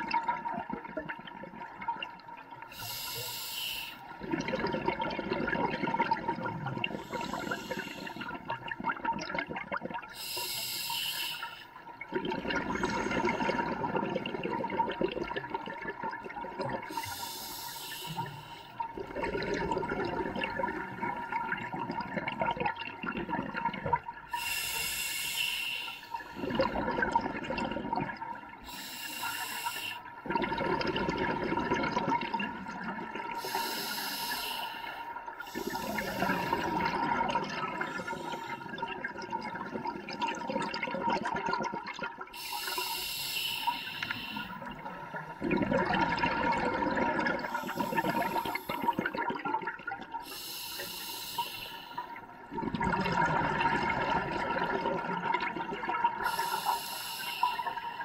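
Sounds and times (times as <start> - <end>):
exhaled bubbles: 0.0 - 58.0
diver inhaling through regulator: 2.7 - 4.1, 6.8 - 8.4, 10.2 - 11.8, 16.9 - 18.8, 24.3 - 26.6, 28.6 - 30.1, 33.4 - 37.1, 37.7 - 38.8, 42.4 - 45.4, 47.4 - 49.2, 50.2 - 52.2, 56.2 - 58.0.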